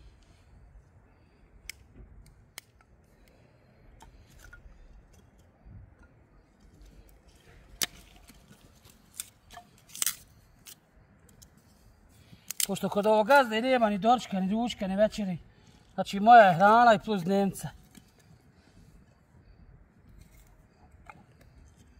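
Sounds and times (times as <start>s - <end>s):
wooden sticks clicking and knocking: 1.6s - 11.7s, 12.4s - 13.0s.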